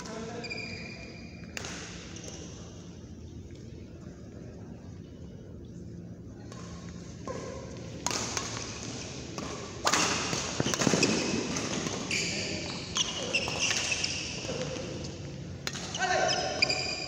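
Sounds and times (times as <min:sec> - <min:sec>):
shoe squeaks: 0:00.3 - 0:01.4, 0:12.1 - 0:14.9, 0:15.9 - 0:17.0
rackets hitting shuttlecock: 0:06.4 - 0:16.0.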